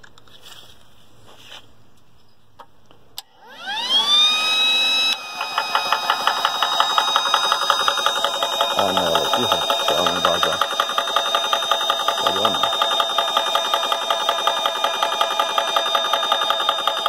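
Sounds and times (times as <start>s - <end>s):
compressor motor whine: 3.2s - 17.0s
compressor piston pumping: 5.2s - 17.0s.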